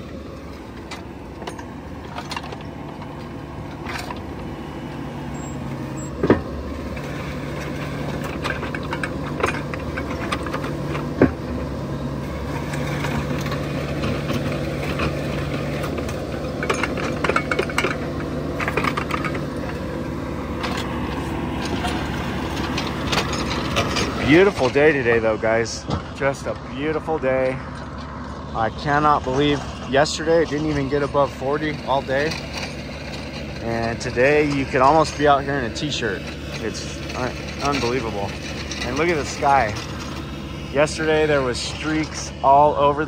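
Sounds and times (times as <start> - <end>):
knocks and clanks: 0.0 - 4.6, 5.2 - 42.4
heavy equipment engine running: 0.0 - 43.0.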